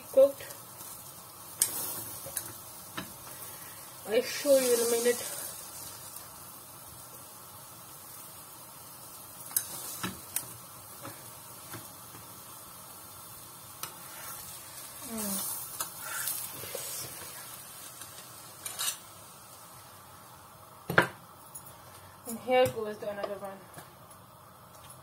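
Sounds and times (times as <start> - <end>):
flatbread sizzling on a griddle: 0.0 - 25.0
utensil scraping a pan: 18.6 - 19.0.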